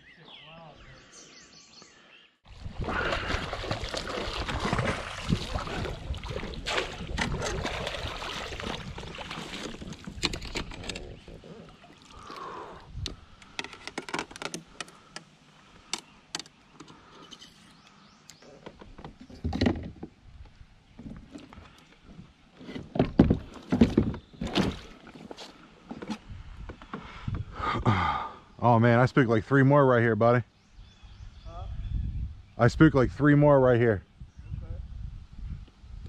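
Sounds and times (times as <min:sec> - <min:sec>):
water splashing: 0:02.5 - 0:12.8.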